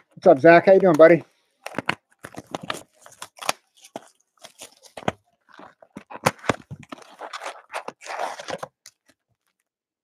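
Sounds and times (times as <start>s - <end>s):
cardboard ripping and scraping: 1.8s - 8.8s.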